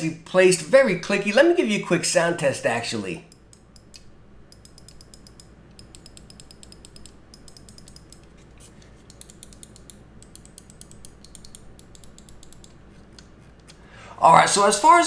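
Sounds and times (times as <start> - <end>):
mouse buttons clicking: 3.3 - 13.3.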